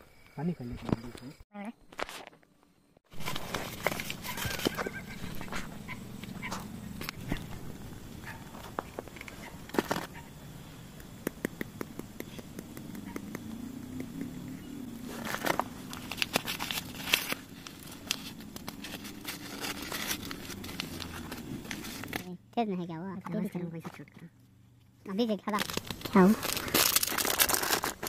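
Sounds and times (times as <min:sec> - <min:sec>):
paper packet crinkling: 0:03.1 - 0:05.7, 0:15.0 - 0:22.3, 0:25.5 - 0:28.0.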